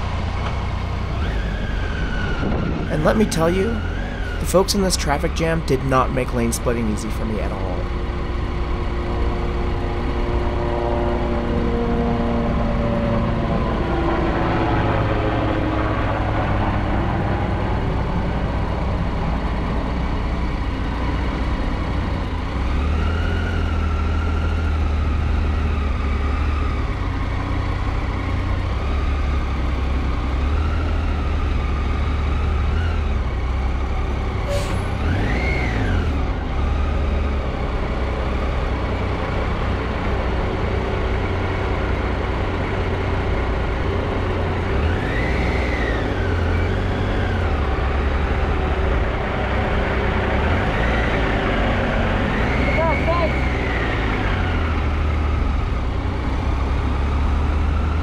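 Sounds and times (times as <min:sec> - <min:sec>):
motorcycle engine at low speed: 0:00.0 - 0:58.0
surrounding traffic noise: 0:00.0 - 0:58.0.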